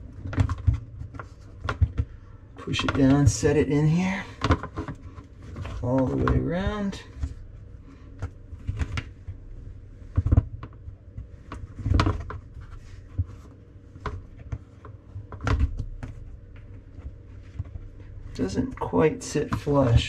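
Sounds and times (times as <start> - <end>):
plastic clicks and knocks: 4.4 - 6.4.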